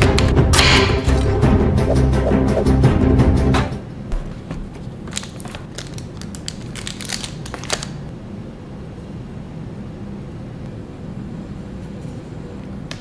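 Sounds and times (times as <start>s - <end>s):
paper rustling and clicking: 4.7s - 8.0s.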